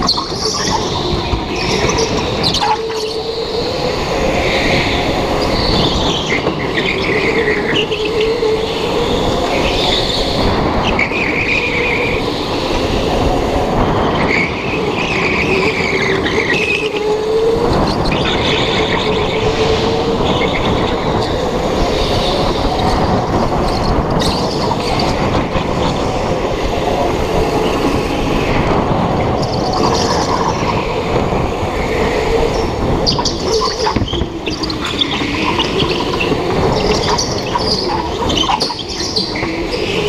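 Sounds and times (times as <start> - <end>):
go-kart motor drone: 0.0 - 40.0
rushing and rumbling noise: 0.0 - 40.0
tyre squeals: 32.5 - 40.0.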